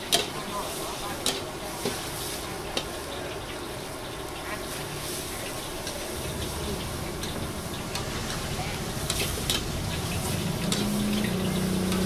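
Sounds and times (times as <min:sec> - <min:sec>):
food sizzling in a wok: 0:00.0 - 0:12.0.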